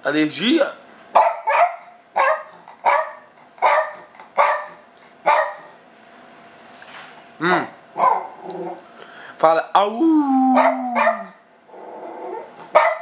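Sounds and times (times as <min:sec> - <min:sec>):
dog barking sharply: 0:01.2 - 0:05.8, 0:08.0 - 0:08.3, 0:10.6 - 0:11.4, 0:12.7 - 0:13.0.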